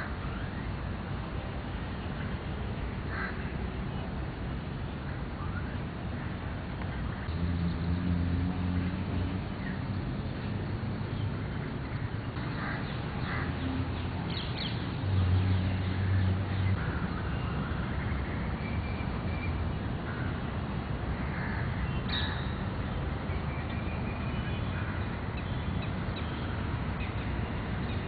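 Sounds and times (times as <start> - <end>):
crows cawing: 3.1 - 3.4, 12.4 - 13.5.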